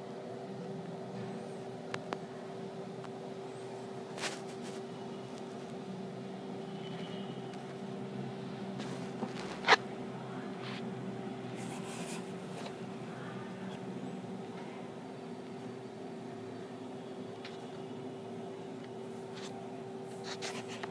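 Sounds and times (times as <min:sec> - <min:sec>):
machine hum with constant tone: 0:00.0 - 0:20.9.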